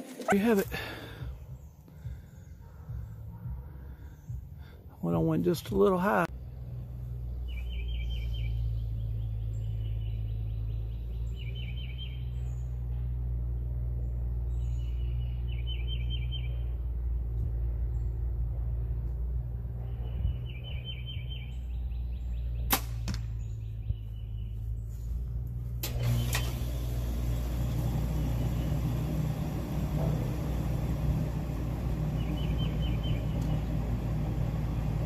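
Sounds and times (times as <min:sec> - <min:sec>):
low background rumble: 0:00.6 - 0:35.0
bird trilled song: 0:07.3 - 0:17.0, 0:19.8 - 0:25.1, 0:32.1 - 0:33.9.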